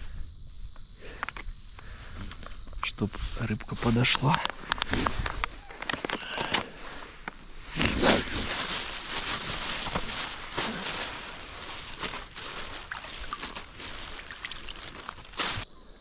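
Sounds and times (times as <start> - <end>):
handling rustles: 3.8 - 15.7.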